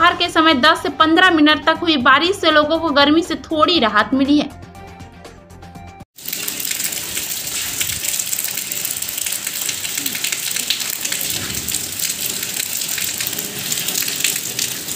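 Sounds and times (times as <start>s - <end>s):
rain on concrete: 6.2s - 14.9s.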